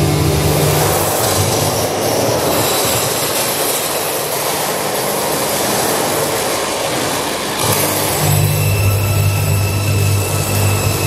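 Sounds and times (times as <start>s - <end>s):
harsh electronic noise: 0.0s - 5.4s, 6.1s - 11.0s.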